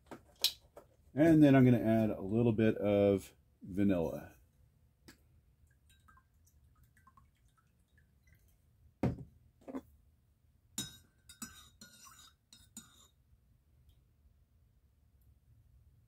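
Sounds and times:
liquid dripping into mug: 5.6s - 8.6s
bottle knocking on counter: 9.0s - 9.8s
spoon clinking in ceramic mug: 10.8s - 13.1s.

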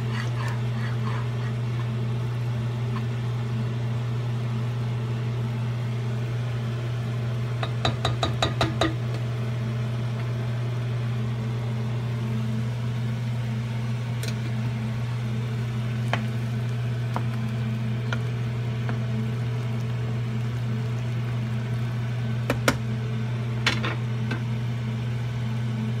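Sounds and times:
pots bubbling: 0.0s - 4.5s, 7.2s - 26.0s
spoon knocking pots: 7.6s - 9.0s.

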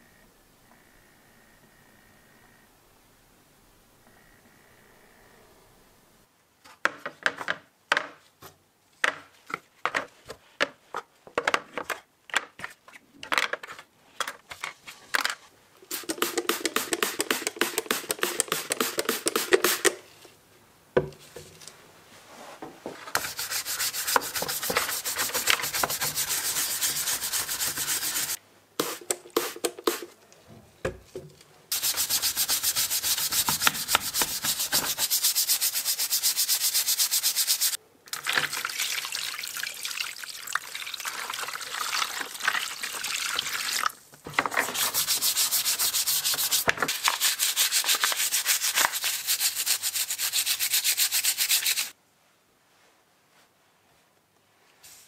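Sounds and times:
scrubber scrubbing plastic: 23.1s - 30.1s, 31.7s - 37.8s, 44.3s - 51.9s.

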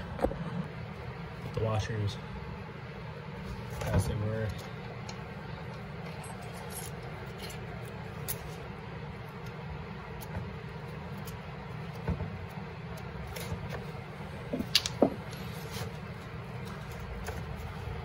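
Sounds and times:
steady low hum: 0.0s - 18.0s
small metal parts clinking: 6.0s - 8.6s.

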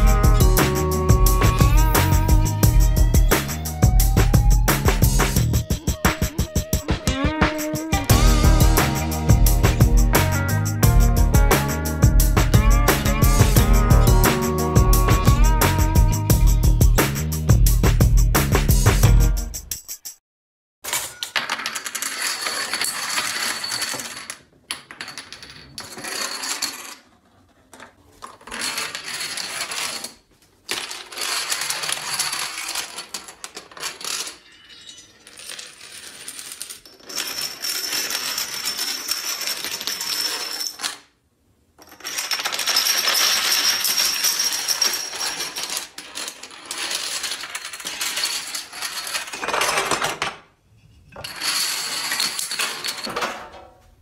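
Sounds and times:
dominoes toppling: 21.3s - 41.2s, 41.8s - 50.3s, 51.2s - 53.1s.

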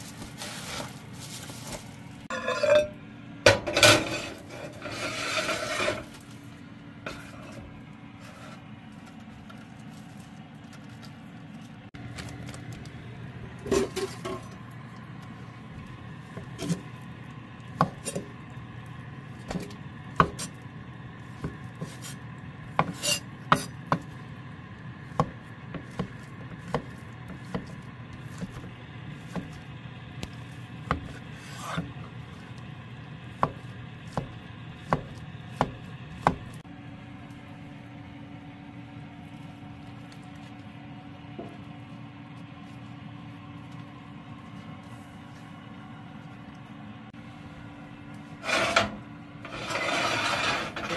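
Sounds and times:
knife chopping on wooden board: 25.1s - 29.6s, 33.4s - 36.5s.

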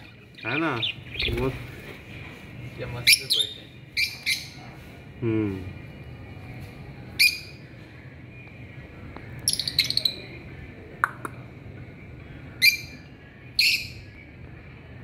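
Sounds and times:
lovebirds shrill chirps: 0.0s - 1.7s, 3.0s - 4.8s, 7.2s - 7.6s, 9.4s - 10.3s, 12.6s - 14.1s.

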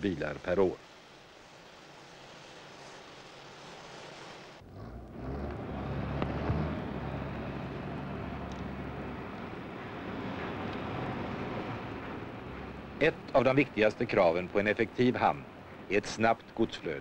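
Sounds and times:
soft steady hiss: 0.0s - 17.0s
heavy vehicle engine humming: 4.6s - 16.6s.

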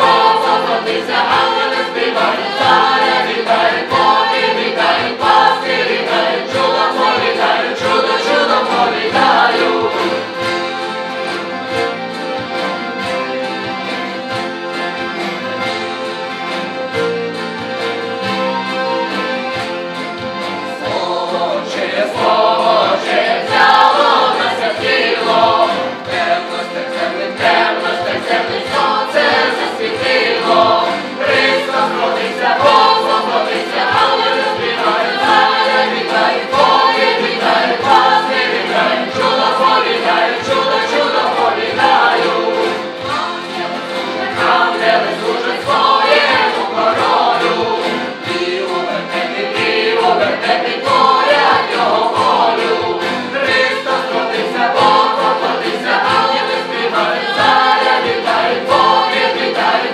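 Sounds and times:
accordion: 0.0s - 59.9s
acoustic guitar: 0.0s - 59.9s
group singing in chorus: 0.0s - 59.9s.

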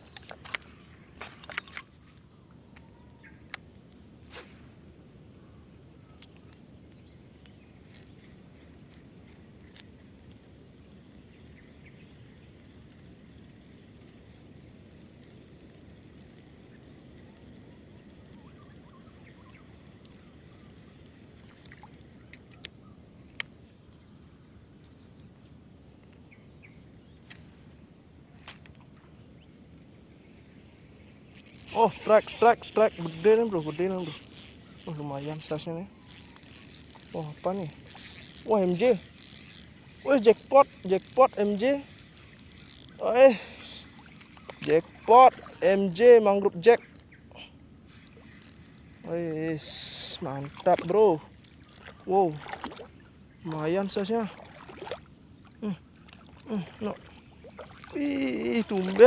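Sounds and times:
fishing reel clicks and taps: 31.4s - 43.8s, 44.6s - 47.1s, 48.4s - 49.2s.

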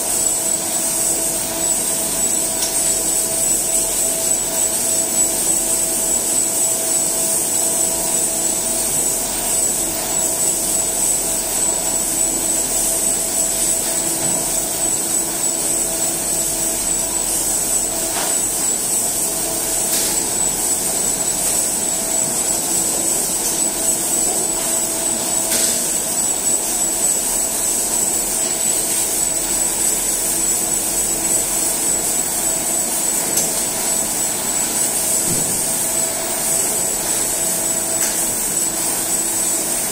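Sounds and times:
factory machinery running: 0.0s - 39.9s
high steady whine: 0.0s - 39.9s.

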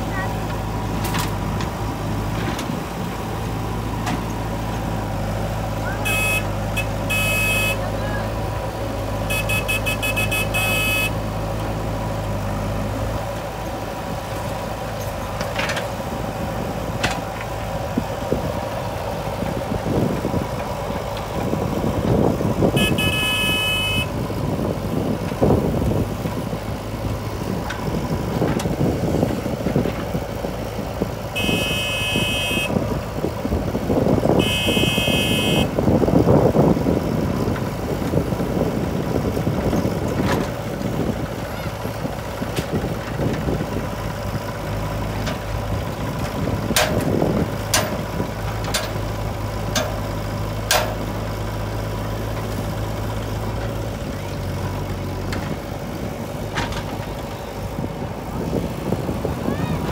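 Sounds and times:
backhoe diesel engine working: 0.0s - 59.9s
tractor engine running: 0.0s - 59.9s
high horn bursts: 6.0s - 7.9s, 9.3s - 11.2s, 22.8s - 24.2s, 31.4s - 32.8s, 34.4s - 35.7s.

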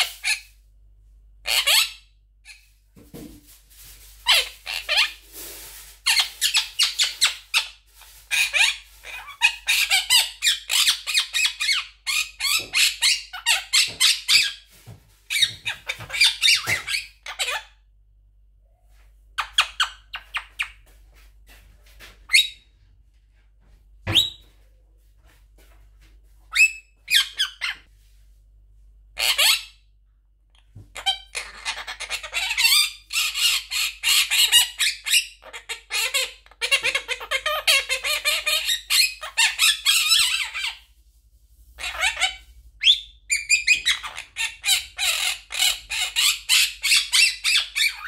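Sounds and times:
parakeet chattering and squawking: 0.0s - 0.6s, 1.4s - 2.7s, 4.2s - 5.2s, 6.0s - 14.7s, 15.3s - 17.8s, 19.4s - 20.8s, 26.5s - 27.9s, 29.2s - 29.8s, 30.6s - 40.9s, 41.7s - 48.0s.

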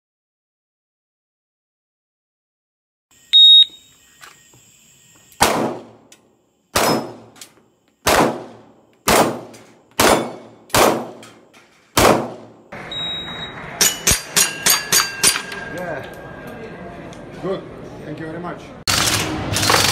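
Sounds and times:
high timer beep: 3.3s - 3.9s, 12.9s - 13.6s
gunshots: 5.4s - 6.1s, 6.7s - 7.4s, 8.0s - 12.7s.

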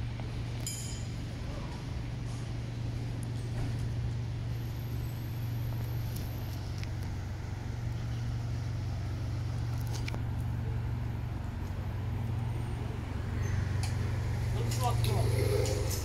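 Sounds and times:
street traffic hum: 0.0s - 16.0s.

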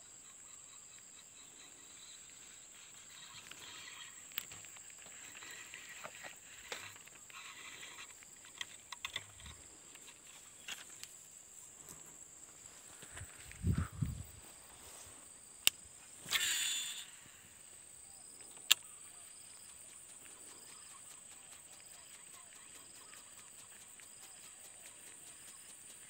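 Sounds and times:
insect drone: 0.0s - 26.0s
reel spool whirring: 2.3s - 10.8s, 16.2s - 17.6s
fishing reel click: 5.5s - 9.6s, 15.6s - 17.3s.

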